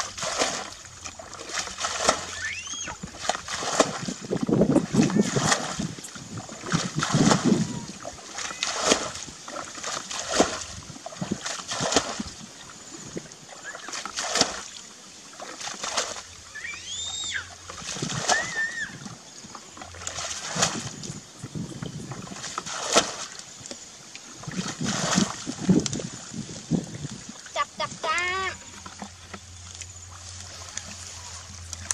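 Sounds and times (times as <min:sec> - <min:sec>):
hands splashing in wet mud: 0:00.0 - 0:04.2, 0:04.9 - 0:05.9, 0:06.6 - 0:12.4, 0:13.8 - 0:14.7, 0:15.4 - 0:16.2, 0:20.0 - 0:21.0, 0:22.4 - 0:23.4
short high arching call: 0:02.3 - 0:03.0, 0:16.5 - 0:17.5.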